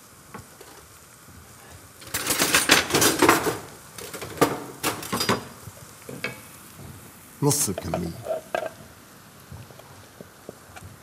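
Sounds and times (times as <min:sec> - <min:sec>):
food sizzling in oil: 0:00.0 - 0:11.0.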